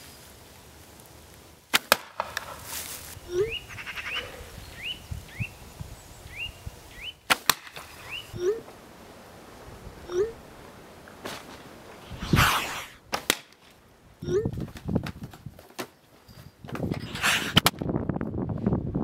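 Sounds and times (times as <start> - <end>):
bow snapping: 1.7 - 2.6, 7.3 - 7.9, 12.3 - 13.7.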